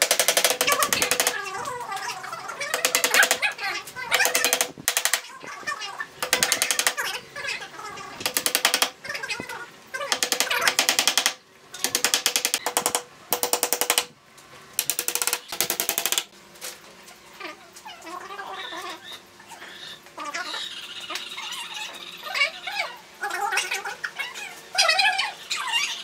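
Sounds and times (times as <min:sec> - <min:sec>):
hammer tapping nails: 0:00.0 - 0:01.4, 0:02.8 - 0:03.4, 0:04.2 - 0:05.2, 0:06.2 - 0:07.0, 0:08.2 - 0:08.9, 0:10.1 - 0:14.1, 0:14.8 - 0:16.3.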